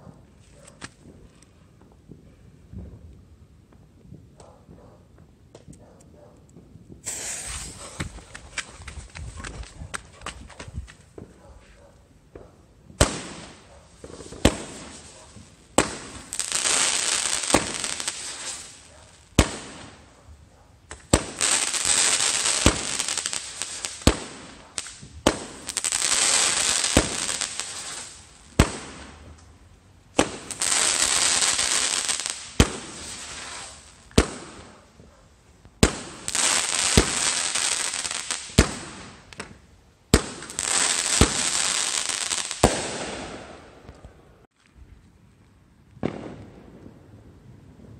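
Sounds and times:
fireworks hissing: 7.0s - 8.9s, 13.0s - 19.9s, 30.2s - 34.5s
firework bangs: 7.0s - 11.4s, 12.9s - 20.1s, 20.9s - 29.4s, 30.2s - 34.7s, 35.8s - 43.8s, 46.0s - 47.0s.

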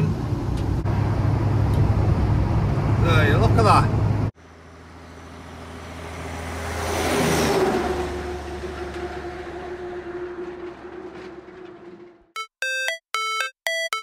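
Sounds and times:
held tone: 12.3s - 14.0s.

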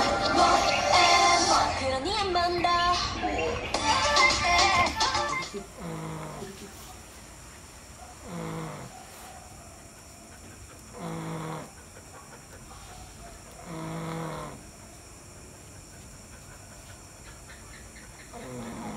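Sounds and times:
dog snoring: 5.2s - 6.6s, 8.1s - 9.0s, 9.9s - 12.9s, 13.5s - 14.8s, 18.3s - 18.9s.

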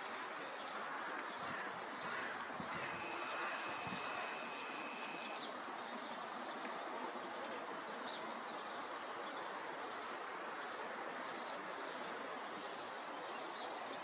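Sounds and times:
steady background hiss: 2.8s - 5.5s.

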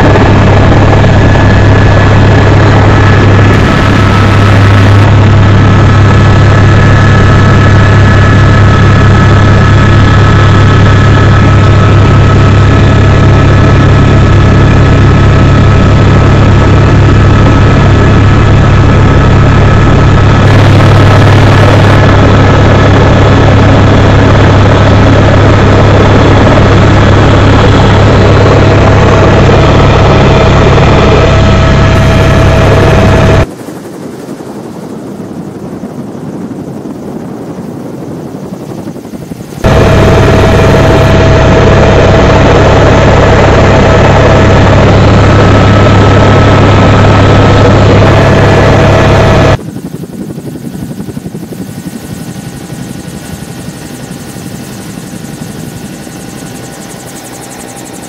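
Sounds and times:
high whining tones: 0.0s - 14.6s, 15.5s - 33.5s, 39.0s - 49.6s
helicopter cabin drone: 0.0s - 58.0s.

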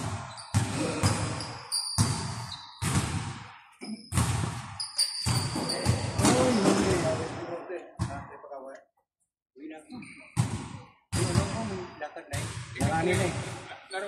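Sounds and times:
basketball bouncing on gym floor: 0.0s - 7.2s, 10.4s - 11.8s, 12.4s - 13.6s
short high squeaks: 4.8s - 6.7s.

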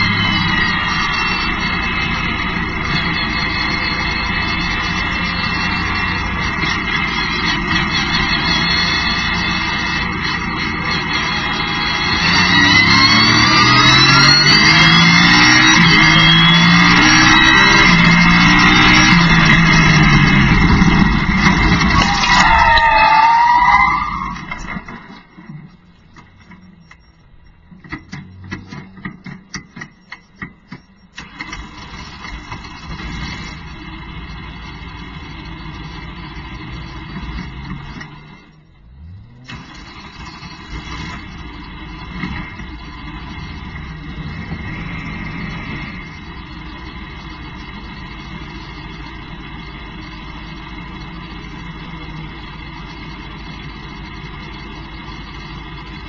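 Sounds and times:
race car engine drone: 0.0s - 56.0s
sharp clicks and pops: 24.4s - 31.7s.

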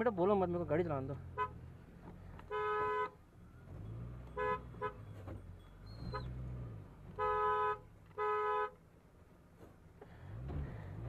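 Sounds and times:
car horn honking: 1.3s - 1.7s, 2.4s - 3.3s, 4.3s - 5.4s, 6.0s - 6.4s, 7.1s - 8.8s
engine running at low speed: 8.9s - 11.0s.

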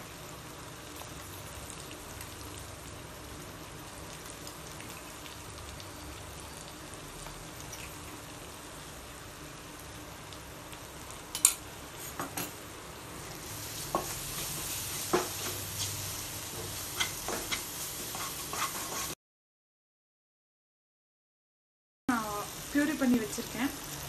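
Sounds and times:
masala sizzling in a pan: 0.0s - 19.2s, 22.1s - 24.0s
wooden spatula scraping a pan: 13.7s - 19.2s.

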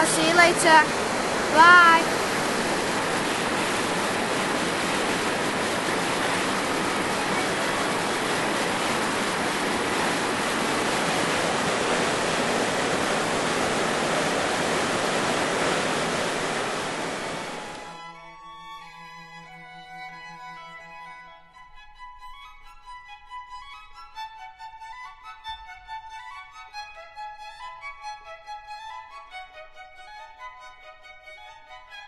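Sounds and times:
waterfall rushing over rock: 0.0s - 17.9s
violin music: 0.0s - 32.0s.

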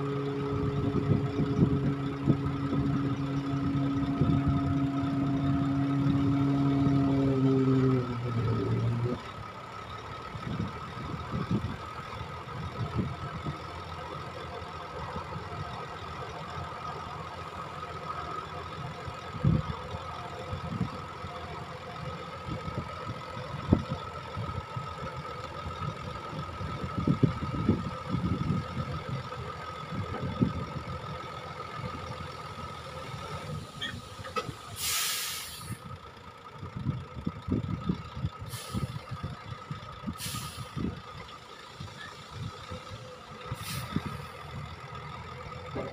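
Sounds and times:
truck engine running: 0.0s - 45.9s
air hissing: 33.7s - 35.8s, 40.2s - 40.8s, 43.6s - 44.3s.

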